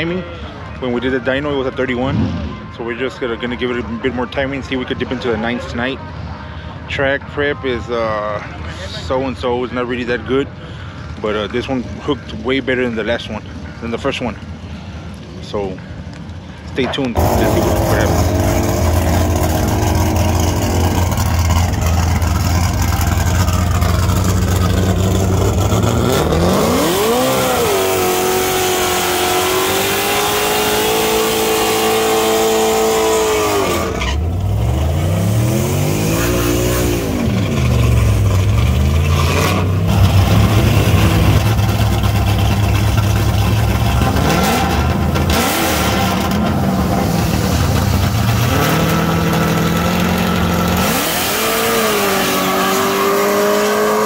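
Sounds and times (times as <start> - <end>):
tyres screeching in burnout: 17.2 - 41.8, 44.0 - 54.0
vee eight engine revving: 17.2 - 54.0.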